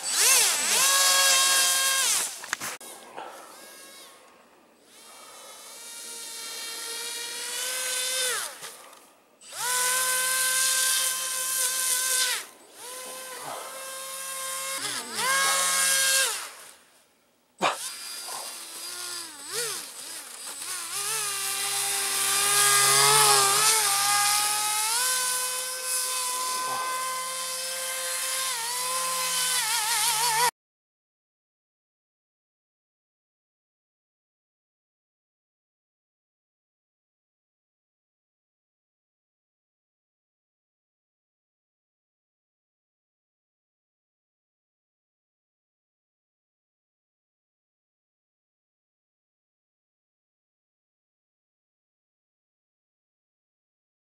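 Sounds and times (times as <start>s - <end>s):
electric motor and propeller whining: 0.0s - 4.3s, 4.9s - 16.8s, 17.7s - 30.5s.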